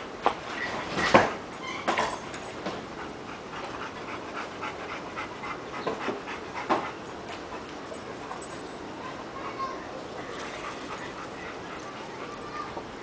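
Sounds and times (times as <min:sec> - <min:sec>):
dog panting: 0:02.6 - 0:13.0.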